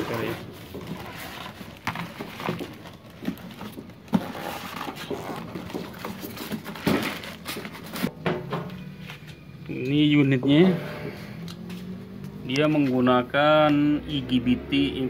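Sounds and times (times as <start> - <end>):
cardboard box being moved: 0.0 - 8.1
plastic wrapping rustling: 0.0 - 8.1.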